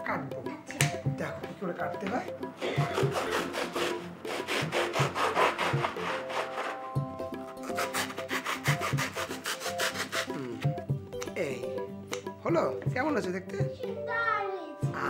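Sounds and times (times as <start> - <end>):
soft background music: 0.0 - 15.0
saw rasping through foam: 2.6 - 10.6.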